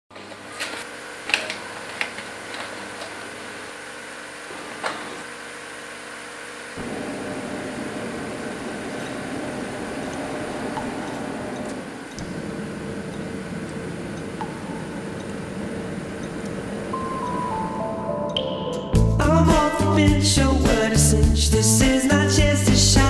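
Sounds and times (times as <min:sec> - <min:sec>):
steady mechanical hum: 0:00.1 - 0:18.1.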